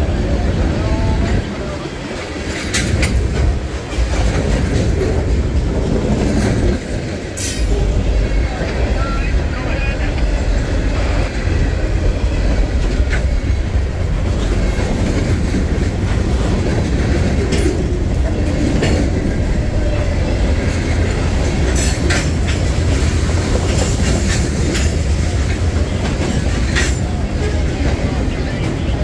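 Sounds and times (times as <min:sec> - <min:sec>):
clickety-clack over rail joints: 0:00.0 - 0:29.0
train wheels rumbling on rails: 0:00.0 - 0:29.0.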